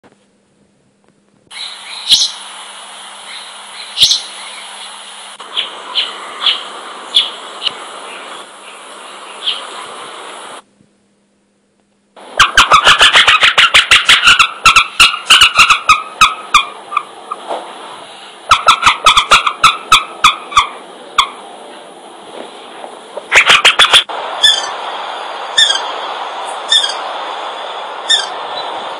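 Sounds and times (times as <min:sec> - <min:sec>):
background hiss: 0:01.4 - 0:10.7, 0:12.1 - 0:28.9
fast chattering bird calls: 0:01.5 - 0:02.4, 0:03.2 - 0:09.9, 0:12.4 - 0:17.1, 0:18.5 - 0:21.3, 0:23.3 - 0:24.8, 0:25.6 - 0:26.0, 0:26.7 - 0:27.1, 0:28.0 - 0:28.7
short sharp high bird calls: 0:01.5 - 0:02.4, 0:03.3 - 0:07.4, 0:25.6 - 0:26.0, 0:26.7 - 0:27.1, 0:28.0 - 0:28.7.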